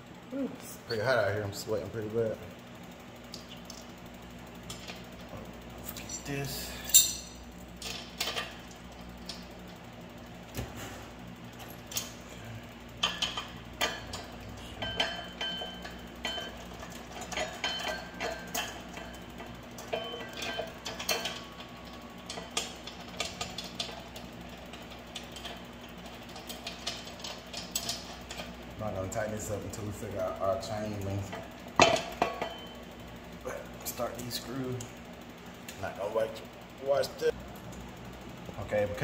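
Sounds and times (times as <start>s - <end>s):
metal washer and nut clinking: 6.2s - 8.5s.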